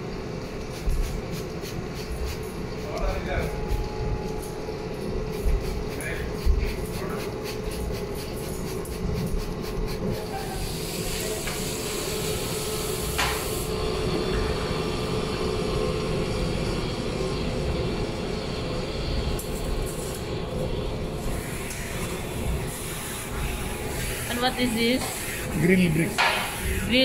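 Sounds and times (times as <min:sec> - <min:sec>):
low machinery rumble: 0:10.0 - 0:27.0.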